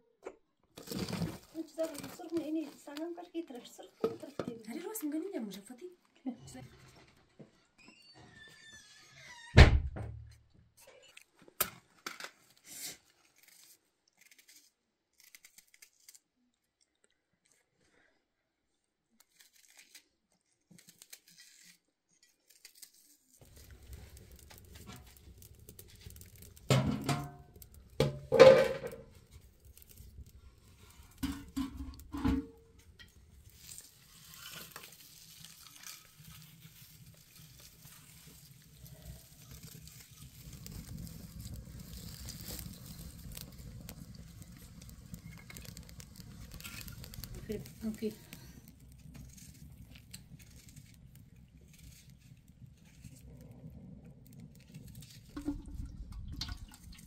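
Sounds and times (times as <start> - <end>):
fire crackling: 0.8 - 5.7, 23.4 - 57.0
low rush of flames: 23.4 - 57.0.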